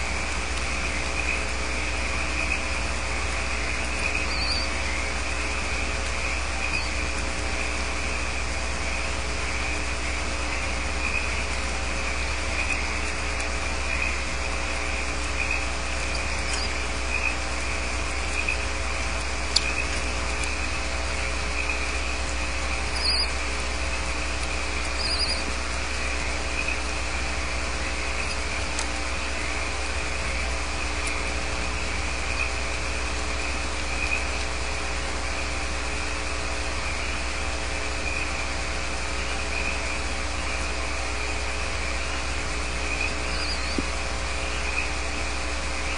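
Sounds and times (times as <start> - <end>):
electrical hum and hiss: 0.0 - 45.9
faint clicks: 15.2 - 16.7, 18.3 - 21.2
high chirring: 22.8 - 23.4.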